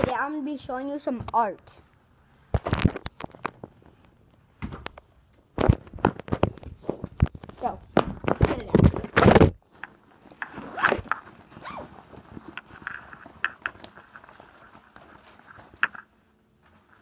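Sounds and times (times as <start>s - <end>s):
microphone handling noise: 4.6s - 9.7s.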